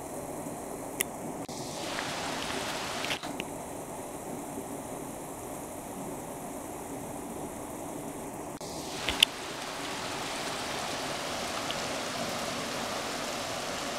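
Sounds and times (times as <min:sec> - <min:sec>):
water splashing down a weir: 0:01.4 - 0:03.7, 0:08.6 - 0:13.9.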